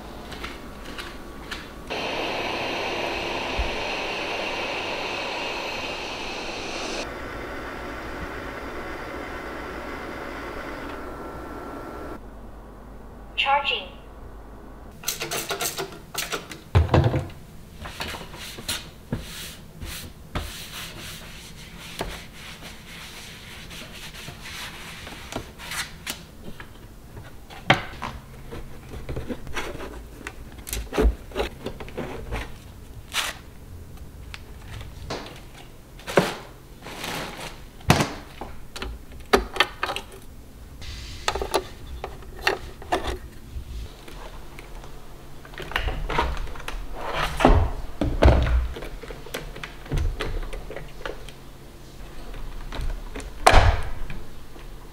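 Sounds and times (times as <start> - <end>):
paper bag rustling: 36.0 - 37.8.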